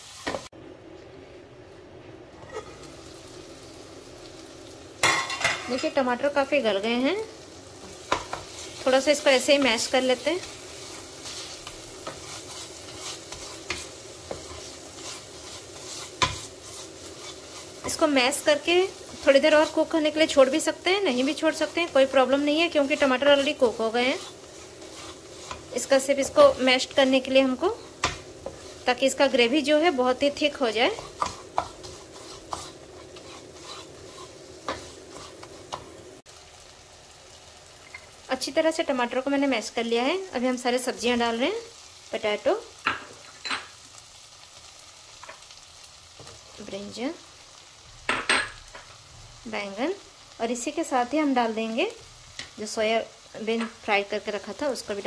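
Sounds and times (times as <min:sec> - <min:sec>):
sauce sizzling in oil: 0:00.0 - 0:00.6, 0:02.3 - 0:55.0
spatula scraping a pan: 0:02.4 - 0:02.9, 0:07.8 - 0:36.0.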